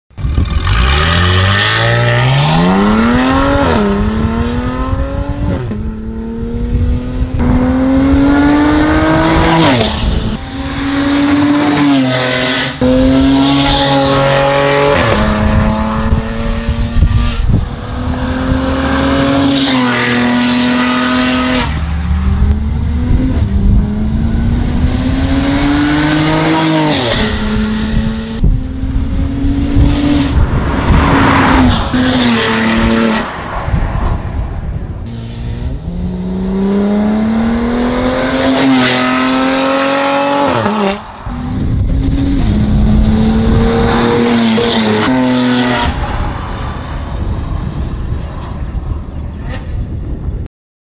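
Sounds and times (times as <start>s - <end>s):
car engine accelerating hard: 35.1s - 46.0s.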